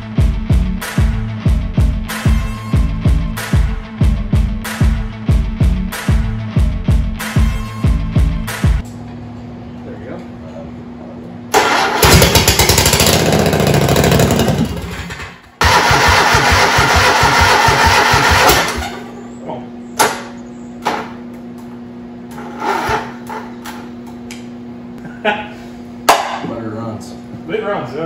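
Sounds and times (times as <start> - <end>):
engine running loud and pulsing: 11.6 - 19.2.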